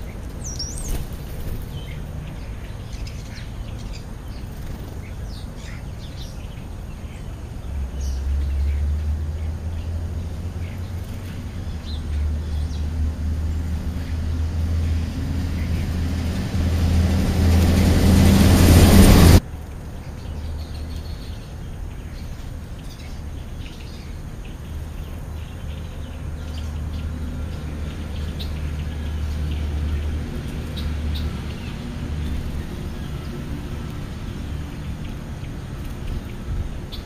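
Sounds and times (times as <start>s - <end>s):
bird chirps: 0.0s - 12.9s
loud rushing noise: 7.7s - 19.4s.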